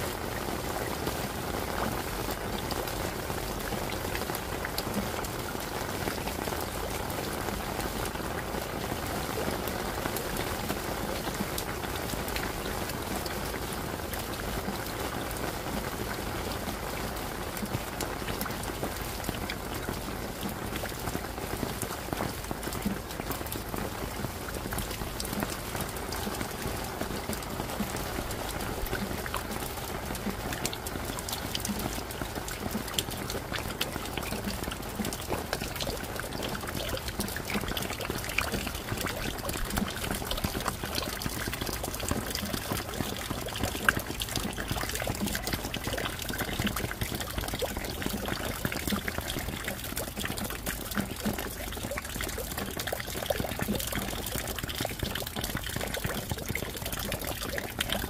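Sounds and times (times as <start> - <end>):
steady rain falling: 0.0 - 58.0
water trickling: 0.0 - 58.0.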